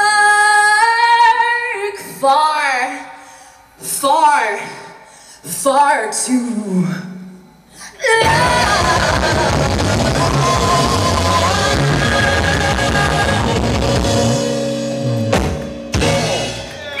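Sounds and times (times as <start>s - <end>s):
woman singing: 0.0s - 3.0s, 8.0s - 13.8s
rock band playing: 8.2s - 17.0s.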